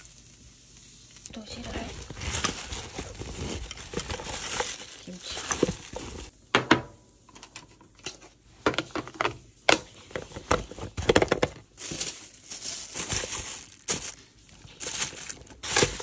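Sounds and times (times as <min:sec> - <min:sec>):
plastic bag crinkling: 0:01.0 - 0:06.3, 0:10.7 - 0:16.0
plastic containers knocking and clicking: 0:08.6 - 0:11.7.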